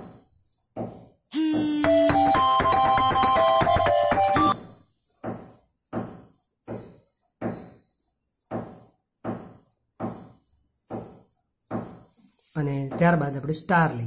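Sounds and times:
pencil drawing lines on paper: 0.0s - 1.6s, 4.6s - 12.8s.

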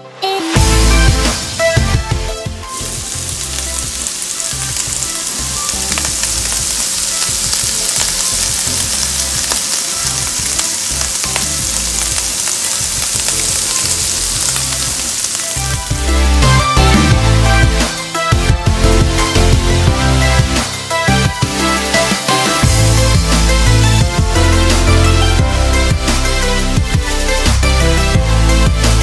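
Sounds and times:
vegetables sizzling in a frying pan: 2.6s - 18.3s.

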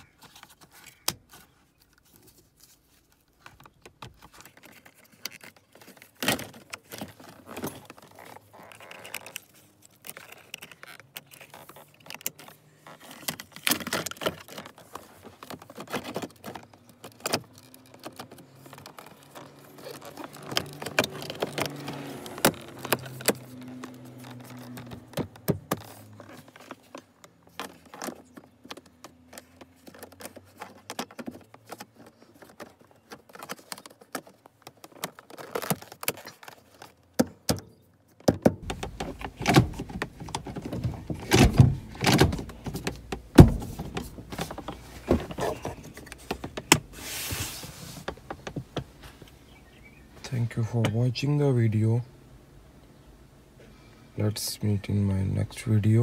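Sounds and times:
knocks and handling noise: 0.0s - 51.3s
plastic trim clicks and rattles: 3.4s - 46.9s.

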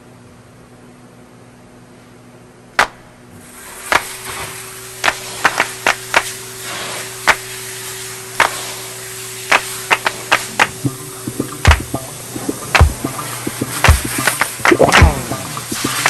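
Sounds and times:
vacuum suction hiss and hum: 0.0s - 16.0s
hose knocking: 9.6s - 16.0s.

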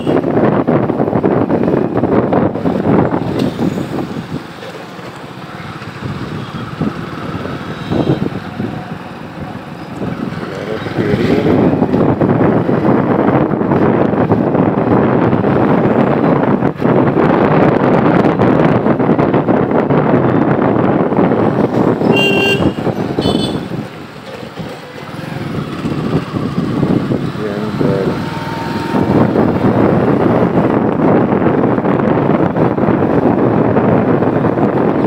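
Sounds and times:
wind rushing over microphone: 0.0s - 35.0s
motorbike engine: 21.3s - 31.0s.

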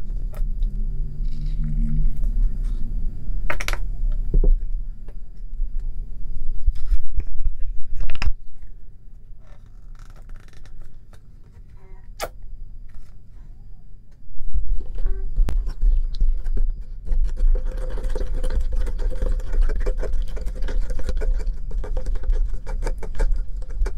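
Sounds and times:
low rumble: 0.0s - 8.9s, 14.2s - 19.7s.

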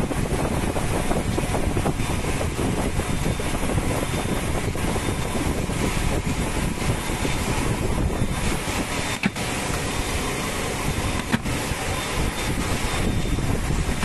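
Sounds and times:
machine running noise: 0.0s - 14.0s.

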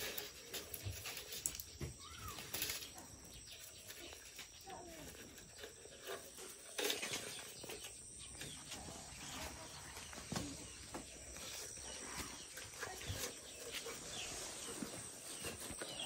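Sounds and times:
bamboo slats clicking and rattling: 0.0s - 8.6s
faint animal calls: 1.8s - 2.8s.

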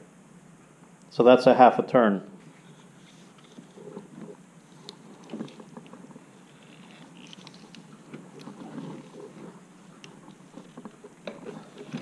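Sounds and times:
soft rustling: 2.4s - 12.0s.

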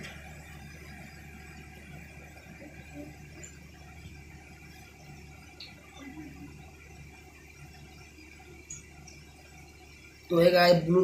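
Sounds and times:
faint background hum: 0.0s - 11.0s
thin high whine: 0.0s - 11.0s.

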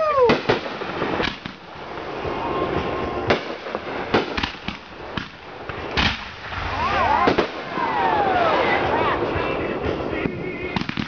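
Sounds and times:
fireworks bangs: 0.0s - 11.0s
steady hiss: 0.4s - 7.6s.

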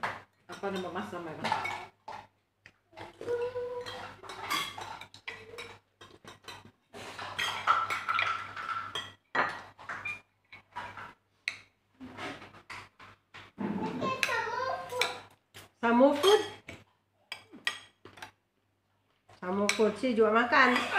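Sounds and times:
cutlery clinking on plates: 3.0s - 15.3s, 16.1s - 18.4s.

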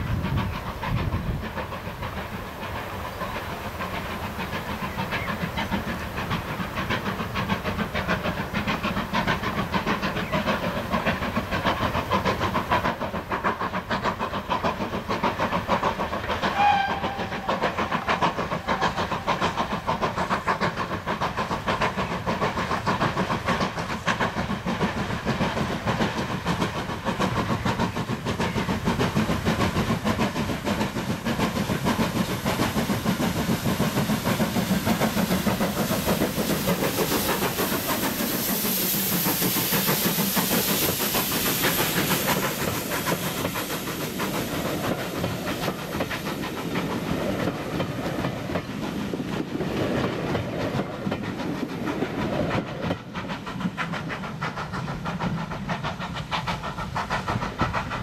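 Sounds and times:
steam locomotive exhaust beating: 0.0s - 58.0s
steam whistle toot: 16.5s - 17.6s.

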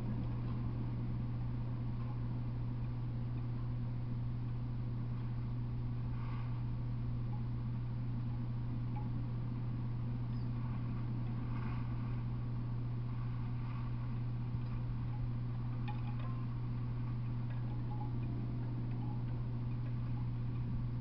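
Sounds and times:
steady low hum: 0.0s - 21.0s
light ticks: 7.2s - 9.7s, 13.0s - 21.0s.

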